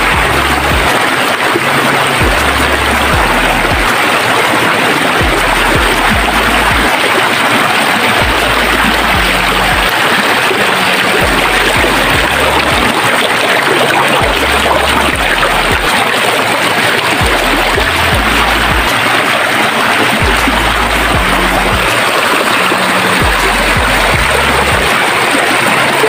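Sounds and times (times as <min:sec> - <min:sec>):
low bass music: 0:00.0 - 0:04.1, 0:05.1 - 0:07.0, 0:08.2 - 0:10.0, 0:10.8 - 0:13.2, 0:14.1 - 0:16.0, 0:17.1 - 0:19.0, 0:20.0 - 0:25.1
stream rushing over stones: 0:00.0 - 0:26.0.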